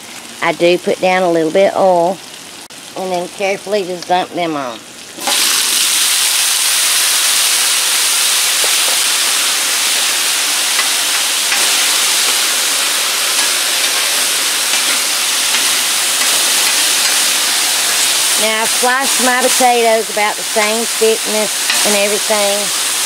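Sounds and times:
potatoes sizzling in oil: 0:00.0 - 0:23.0
hiss of steam: 0:05.2 - 0:23.0.

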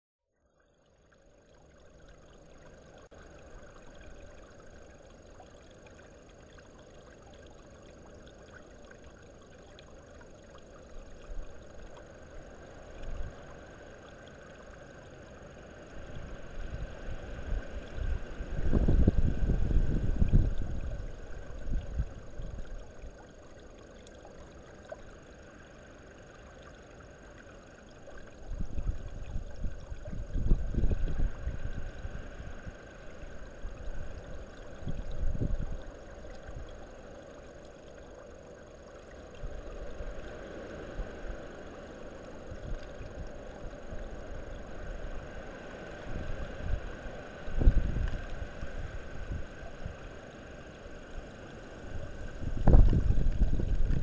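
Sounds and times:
low gusty rumble: 0:17.5 - 0:22.7, 0:28.5 - 0:32.7, 0:34.8 - 0:35.9, 0:47.5 - 0:49.9, 0:51.9 - 0:54.0.

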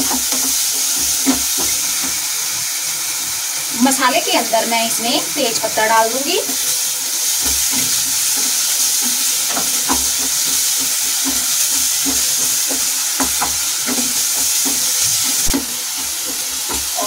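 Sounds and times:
food sizzling in hot oil: 0:00.0 - 0:17.0
wooden spatula scraping pan: 0:05.3 - 0:17.0.

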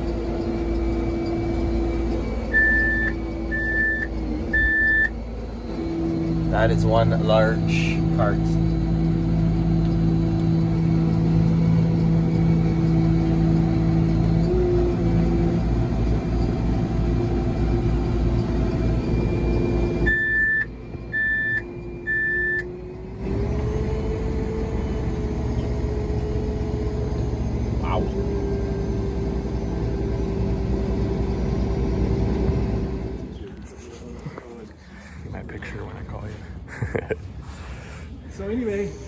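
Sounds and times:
short electronic beeps: 0:02.4 - 0:05.2, 0:19.1 - 0:22.6.

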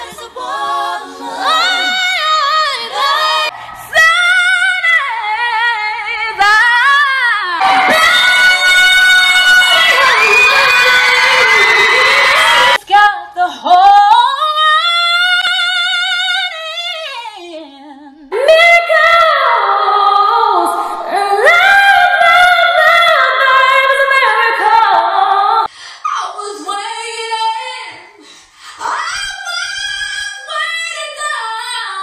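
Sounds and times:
women singing high notes: 0:00.0 - 0:13.2.

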